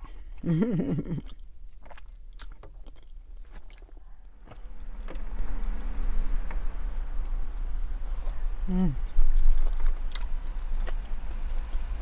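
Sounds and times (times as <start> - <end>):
close-up chewing: 0.0 - 4.6, 9.0 - 12.0.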